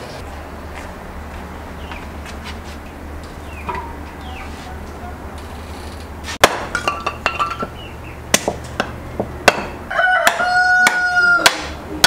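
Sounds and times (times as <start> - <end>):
cleaver chopping wood: 6.4 - 7.3, 8.3 - 11.8
rooster crowing: 9.8 - 11.6.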